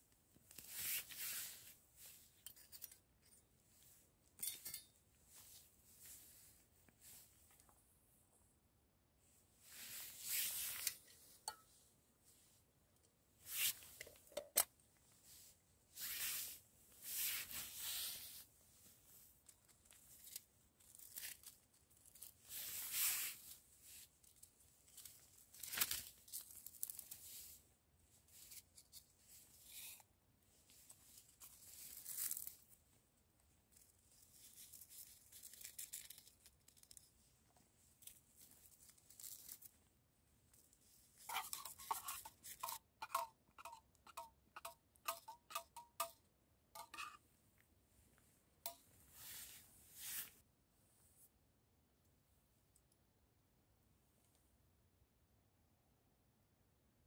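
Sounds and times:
spoon clinking against metal mug: 41.3s - 46.2s, 46.8s - 47.2s.

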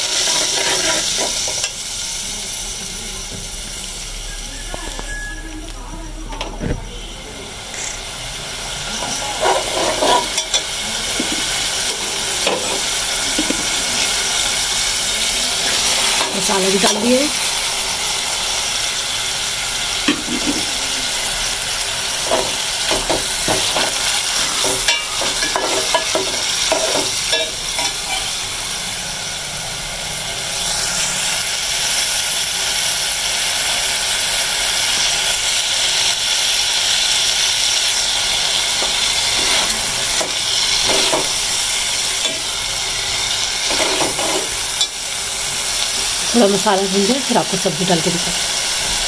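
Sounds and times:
ladle scraping metal pot: 0.0s - 1.7s, 9.0s - 14.2s, 38.6s - 41.5s, 43.2s - 44.9s
food sizzling in hot oil: 0.0s - 49.0s.

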